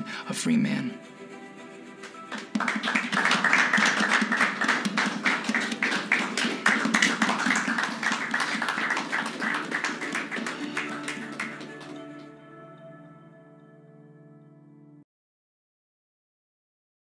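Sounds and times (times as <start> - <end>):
group clapping in applause: 2.0 - 12.4.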